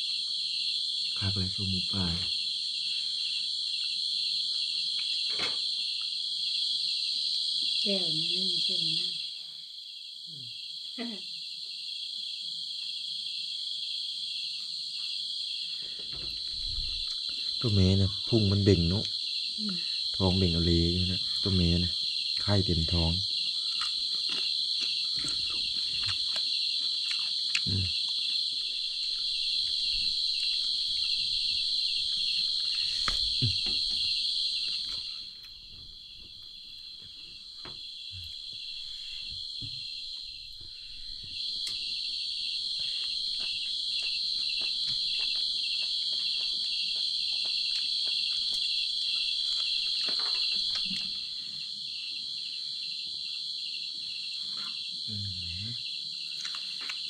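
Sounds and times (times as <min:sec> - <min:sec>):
night insects trilling: 0:00.0 - 0:57.0.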